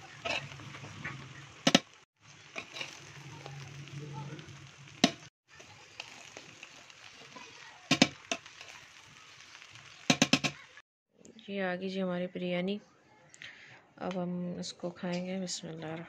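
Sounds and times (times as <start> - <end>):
metal spoon stirring rice in pot: 2.4 - 3.9, 5.0 - 10.7.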